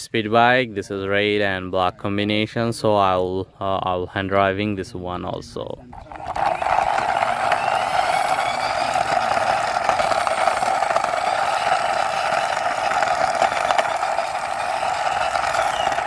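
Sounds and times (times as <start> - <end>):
toy wheels grinding on stone: 5.9 - 16.0.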